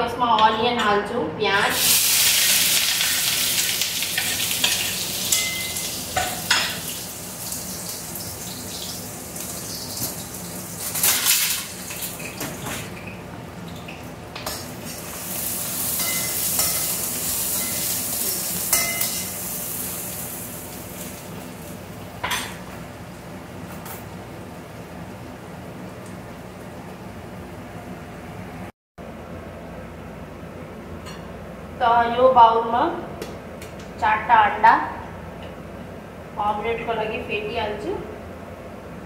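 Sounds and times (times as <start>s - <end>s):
onions sizzling in hot oil: 1.7s - 12.7s, 14.6s - 22.0s.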